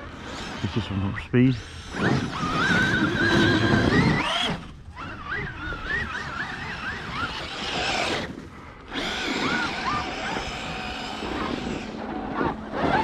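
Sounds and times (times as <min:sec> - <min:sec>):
electric motor whining: 0:00.0 - 0:13.0.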